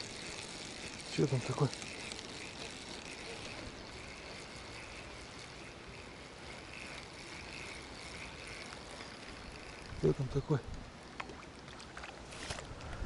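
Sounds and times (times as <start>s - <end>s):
faint high whir: 0.0s - 13.0s
flowing water rushing: 10.9s - 12.7s.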